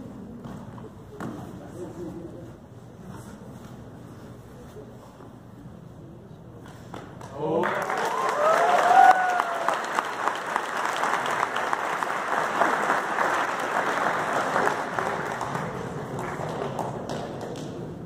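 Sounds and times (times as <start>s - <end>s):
audience applauding: 7.4s - 17.6s.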